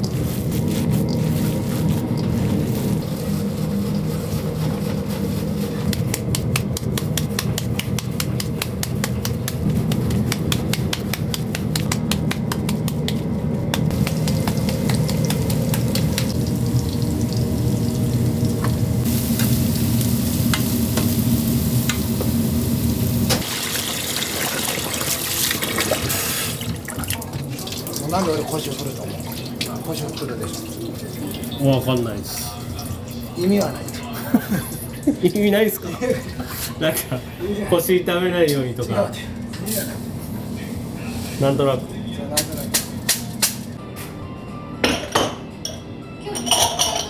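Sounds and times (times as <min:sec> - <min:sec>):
meat patties sizzling in frying pan: 0:13.9 - 0:24.2.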